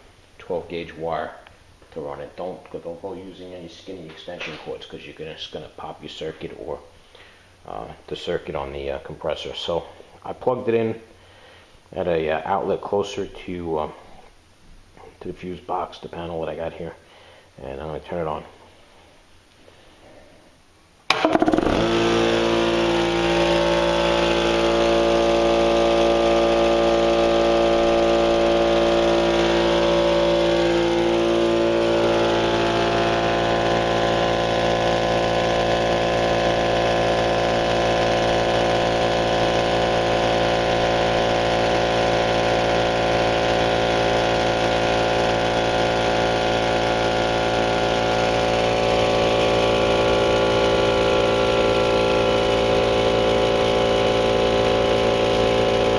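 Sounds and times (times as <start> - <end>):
air compressor running: 6.9 - 7.7, 21.1 - 55.9.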